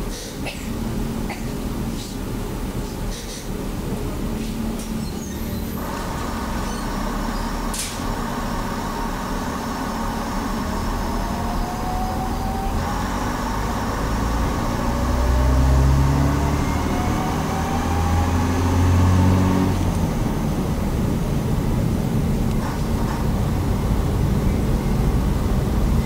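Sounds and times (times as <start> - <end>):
diesel railcar engines running: 0.0 - 26.0
rising whine: 5.8 - 21.1.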